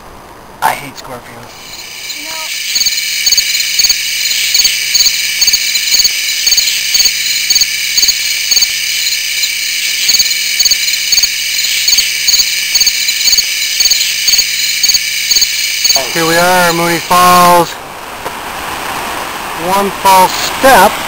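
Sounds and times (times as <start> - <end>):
insects trilling: 1.5 - 17.7.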